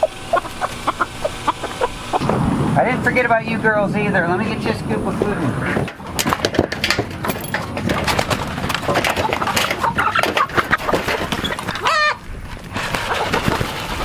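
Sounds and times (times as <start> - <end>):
loud hen call: 0.0 - 2.2, 11.6 - 12.2
hens clucking: 0.0 - 2.3, 5.0 - 14.0
pecking and scratching in dirt: 0.0 - 2.3, 5.7 - 14.0.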